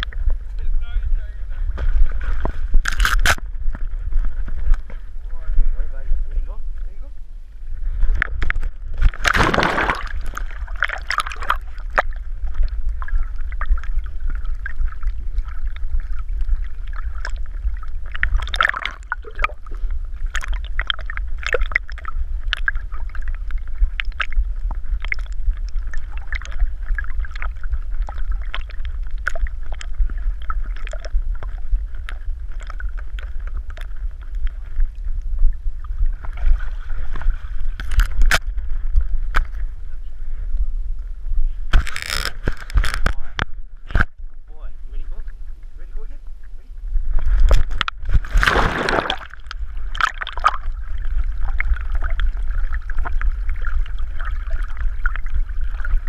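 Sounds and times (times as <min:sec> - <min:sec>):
small clicks and drips: 0:00.0 - 0:00.7, 0:09.9 - 0:37.2, 0:37.8 - 0:39.7, 0:41.8 - 0:44.2, 0:49.1 - 0:56.0
steady low rumble: 0:00.0 - 0:56.0
water splashing around swimming dog: 0:09.1 - 0:19.7.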